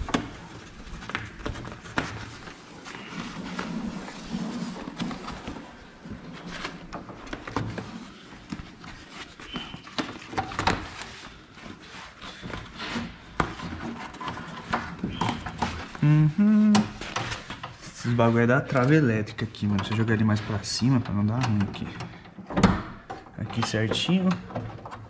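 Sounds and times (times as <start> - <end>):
man's voice: 17.9 - 22.0, 23.4 - 24.4.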